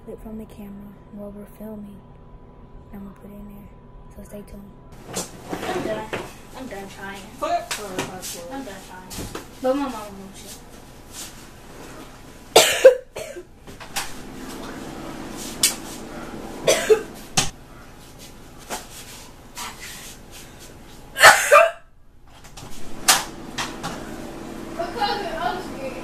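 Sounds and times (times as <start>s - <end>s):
person coughing: 12.6s - 13.4s, 16.6s - 17.1s, 21.2s - 21.8s.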